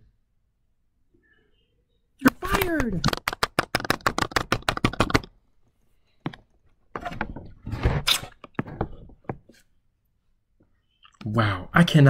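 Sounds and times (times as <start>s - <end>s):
knocks and clicks: 2.2s - 5.4s.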